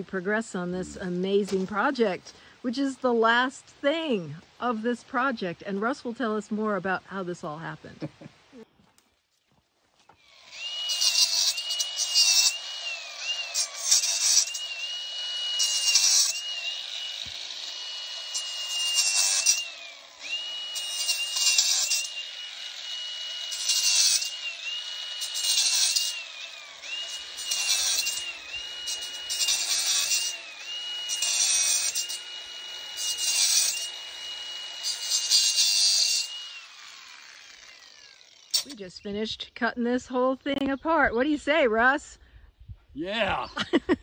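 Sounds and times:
power tool motor whine: 0:10.1 - 0:38.8
rasping wire cut: 0:10.2 - 0:38.9.

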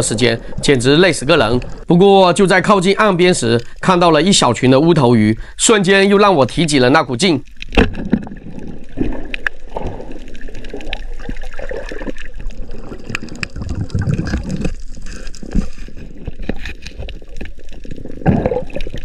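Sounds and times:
water sloshing and gurgling: 0:00.0 - 0:01.9, 0:07.4 - 0:19.0.

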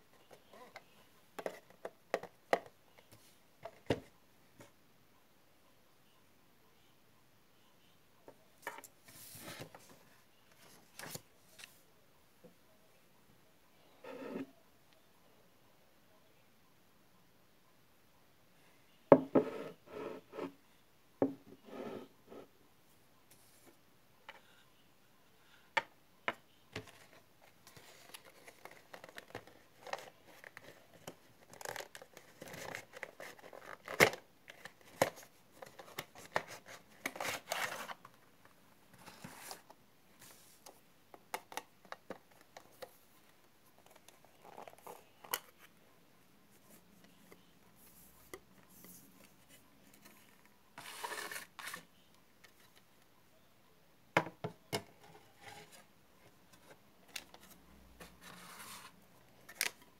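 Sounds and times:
paper and cardboard rustling: 0:26.8 - 0:38.1, 0:38.9 - 0:40.7, 0:47.8 - 0:51.9, 0:56.5 - 0:59.8.

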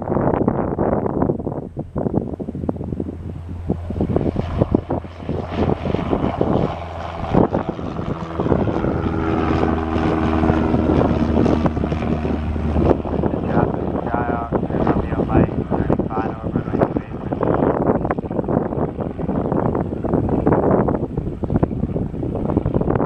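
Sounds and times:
propeller plane engine drone: 0:00.0 - 0:23.0.

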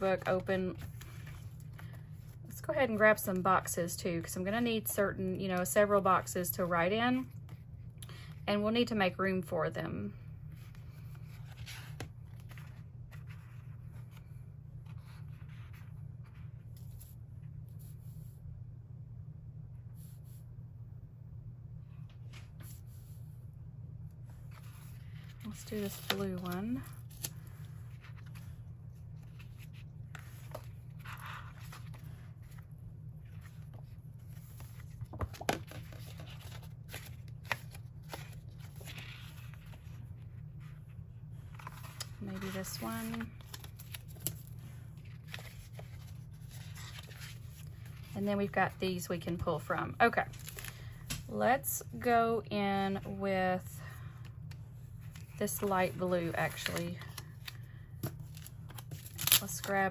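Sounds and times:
steady low hum: 0:00.0 - 0:59.9
paper rustling: 0:10.6 - 0:18.4, 0:24.4 - 0:40.8, 0:41.4 - 0:48.3.

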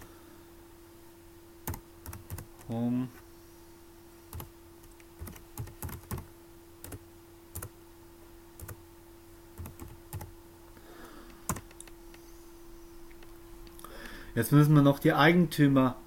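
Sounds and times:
faint steady hum: 0:00.0 - 0:16.0
keyboard keystrokes: 0:01.7 - 0:02.5, 0:04.3 - 0:06.2, 0:11.5 - 0:12.0.

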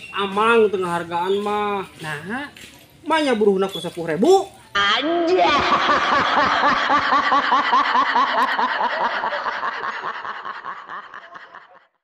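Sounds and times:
rapid snickering laugh: 0:05.5 - 0:11.9.

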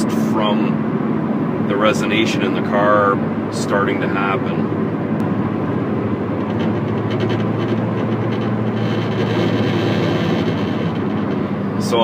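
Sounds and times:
buzzing vibration from the rear: 0:00.0 - 0:12.0
car cabin hum at highway speed: 0:00.0 - 0:12.0.

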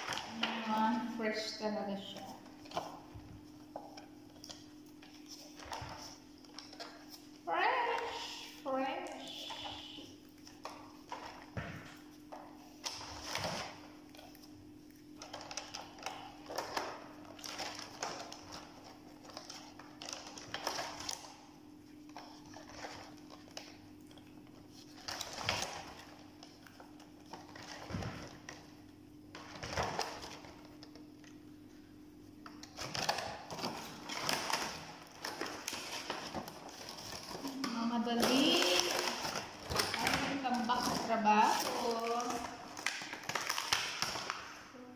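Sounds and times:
plastic containers clicking and crinkling: 0:15.2 - 0:21.5, 0:22.1 - 0:28.7, 0:29.3 - 0:31.4, 0:32.4 - 0:44.6.

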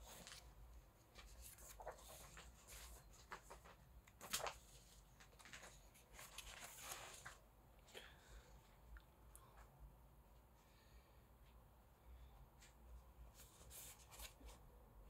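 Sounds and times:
book pages turning: 0:00.0 - 0:07.4, 0:13.4 - 0:14.6.

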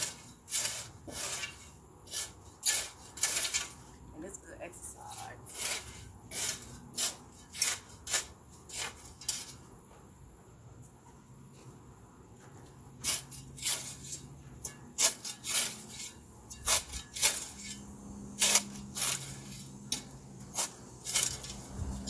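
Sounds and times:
shovel scraping dry soil: 0:00.0 - 0:09.7, 0:13.0 - 0:22.0.

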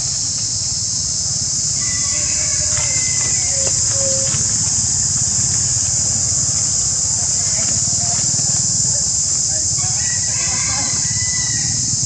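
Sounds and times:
insect chorus droning: 0:00.0 - 0:12.0
low steady rumble: 0:00.0 - 0:12.0
faint whistle-like calls: 0:01.7 - 0:08.6, 0:09.5 - 0:12.0.

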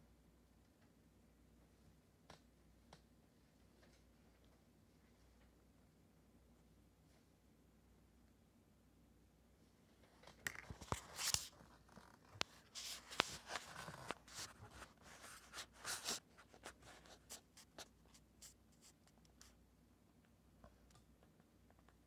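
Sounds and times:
rustling and scraping handling: 0:10.0 - 0:19.6.

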